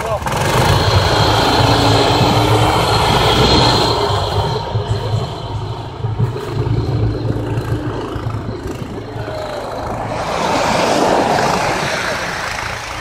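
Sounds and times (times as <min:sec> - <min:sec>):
snow tow engine humming: 0:00.0 - 0:13.0
sled rushing over snow: 0:06.8 - 0:13.0.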